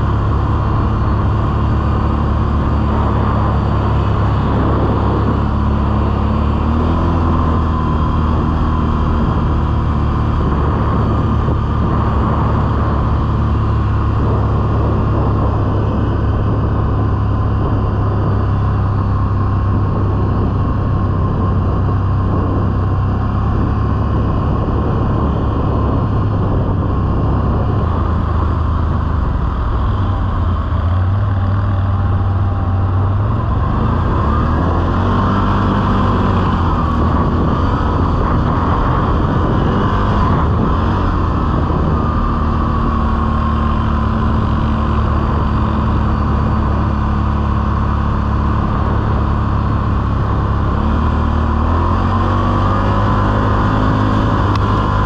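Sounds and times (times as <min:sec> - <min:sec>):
quad bike engine running: 0:00.0 - 0:55.0.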